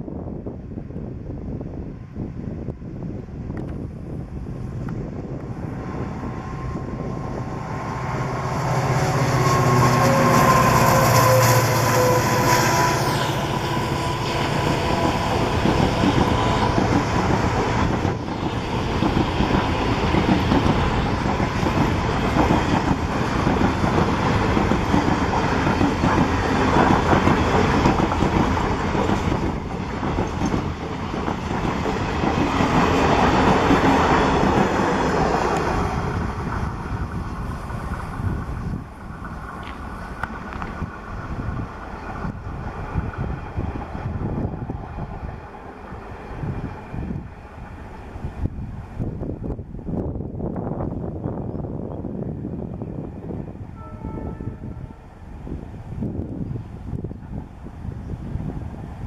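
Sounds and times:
diesel locomotive engine passing: 0:01.0 - 0:59.0
train wheels clacking over rail joints: 0:13.7 - 0:35.8.

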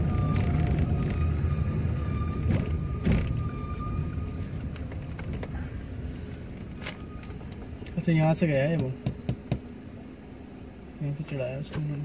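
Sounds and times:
faint high whine: 0:00.0 - 0:09.0
car driving slowly rumble: 0:00.0 - 0:12.0.

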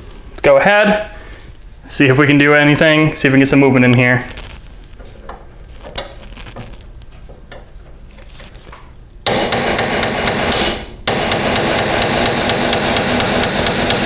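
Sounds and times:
hammer striking metal punch: 0:09.3 - 0:14.0.

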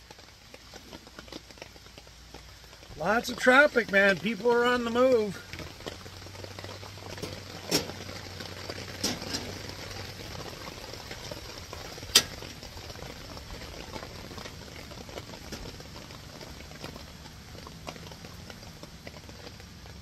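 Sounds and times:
water bubbling on a stove: 0:00.0 - 0:20.0.

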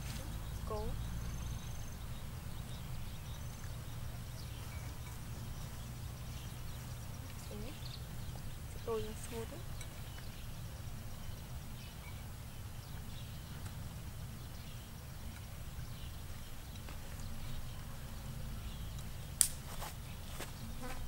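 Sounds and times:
fly buzzing: 0:20.3 - 0:21.0.

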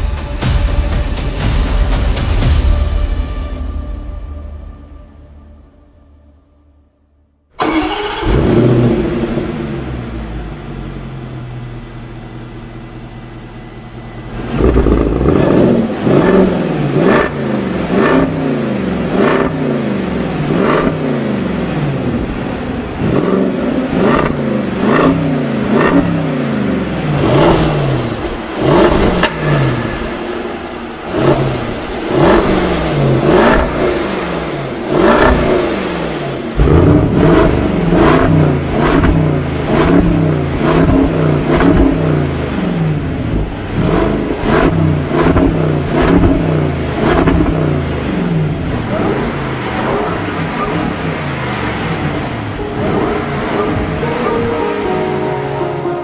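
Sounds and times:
car engine idling and revving: 0:00.0 - 0:03.6, 0:07.4 - 0:56.0
exhaust cracks: 0:14.2 - 0:54.1.

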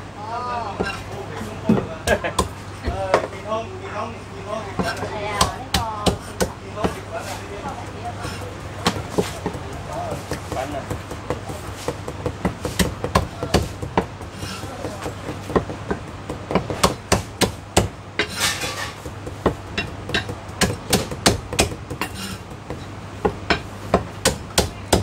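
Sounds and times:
cleaver chopping on wooden block: 0:04.8 - 0:07.0, 0:08.2 - 0:18.4, 0:19.0 - 0:25.0.

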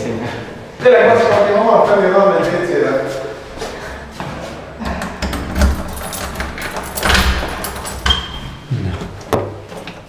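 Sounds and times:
keys jangling: 0:05.3 - 0:08.6.

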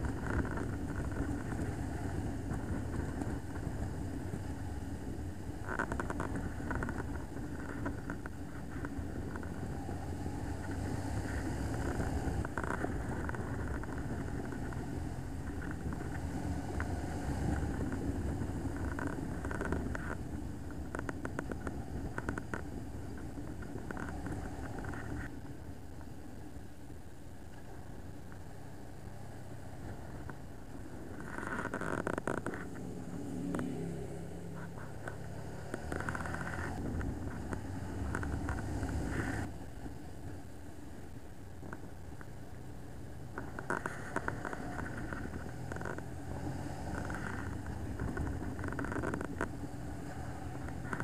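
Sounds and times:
motorcycle engine drone: 0:00.0 - 0:51.0
road noise: 0:00.0 - 0:51.0
faint clicks: 0:10.6 - 0:25.4.

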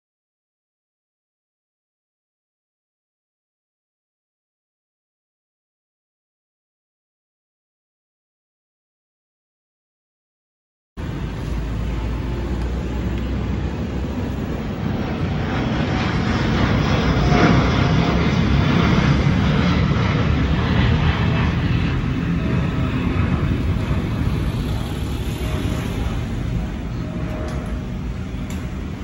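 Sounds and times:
jet engines rumbling: 0:11.0 - 0:29.0.

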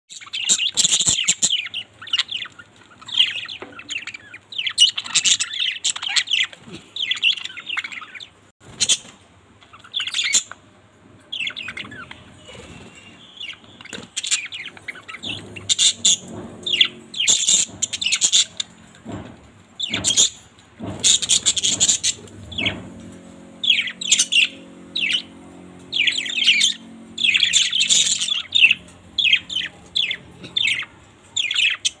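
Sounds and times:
budgerigars chirping: 0:00.1 - 0:10.6, 0:11.3 - 0:19.2, 0:19.8 - 0:32.0.

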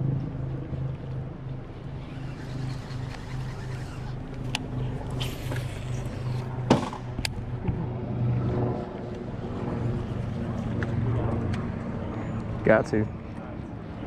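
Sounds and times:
boat motor humming: 0:01.6 - 0:07.3.

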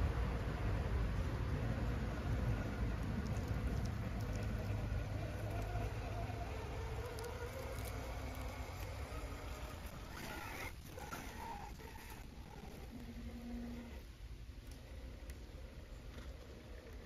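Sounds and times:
electric motor whining: 0:04.1 - 0:14.1.

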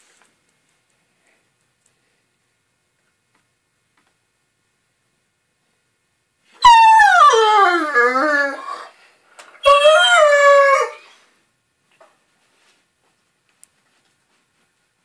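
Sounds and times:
dog howling: 0:06.6 - 0:09.0, 0:09.6 - 0:11.2.

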